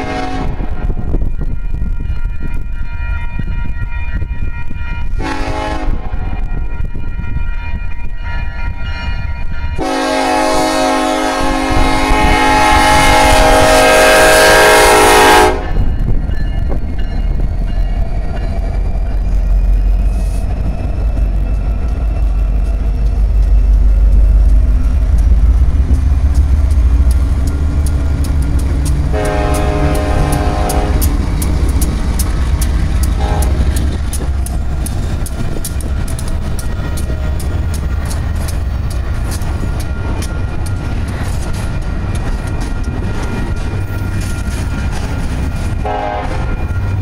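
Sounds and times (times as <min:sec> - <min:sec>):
locomotive horn blasts: 0:00.0 - 0:01.0, 0:05.0 - 0:06.4, 0:09.8 - 0:15.9, 0:29.0 - 0:31.2, 0:33.1 - 0:34.0, 0:45.8 - 0:46.6
diesel locomotive engines passing: 0:00.0 - 0:47.0
crossing bell ringing: 0:00.8 - 0:11.8, 0:12.8 - 0:47.0.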